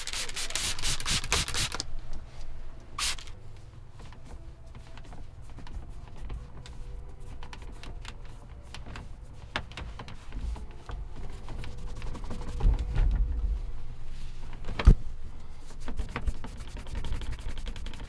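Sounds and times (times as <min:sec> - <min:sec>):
towel rubbing on plastic: 0:05.2 - 0:13.0, 0:15.6 - 0:18.0.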